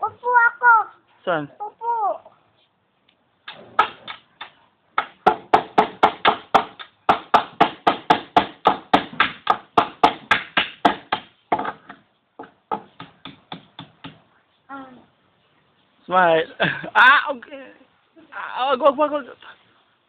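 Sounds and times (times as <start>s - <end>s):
hammer striking nail: 5.0s - 14.2s.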